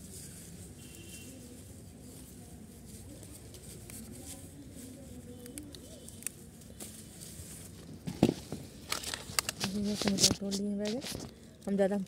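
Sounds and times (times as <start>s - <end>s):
leaves rustling: 0.0s - 8.0s.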